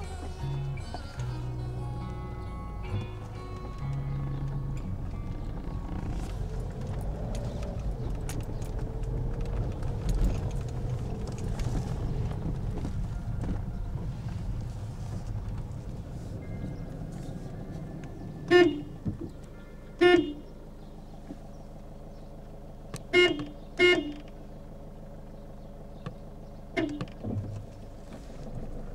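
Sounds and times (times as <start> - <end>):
car engine hum: 0.0 - 28.9
car horn toots: 18.4 - 20.6, 23.0 - 24.4, 26.7 - 27.2.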